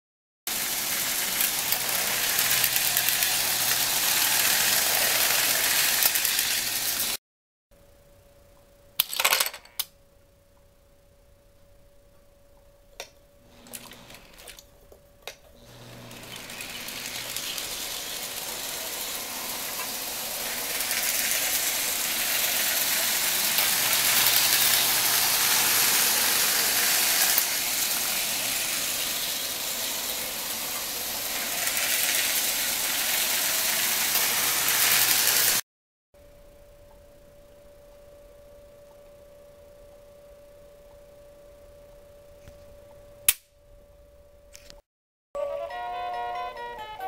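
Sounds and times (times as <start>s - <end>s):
toy train rattling on track: 0.5s - 7.2s, 15.7s - 35.6s.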